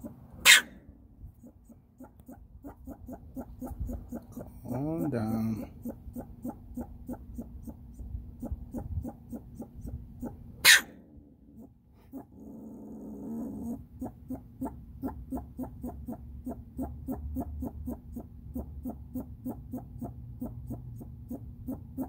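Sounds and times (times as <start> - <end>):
animal making short quick calls: 10.6 - 10.9.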